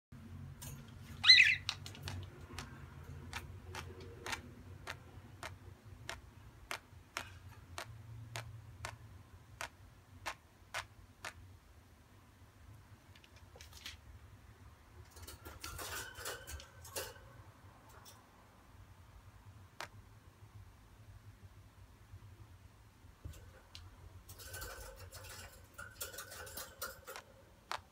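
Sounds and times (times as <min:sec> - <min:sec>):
budgerigar chirp: 0:01.2 - 0:01.8
budgerigar clicks: 0:01.2 - 0:09.0
sharp even ticks: 0:01.3 - 0:11.5.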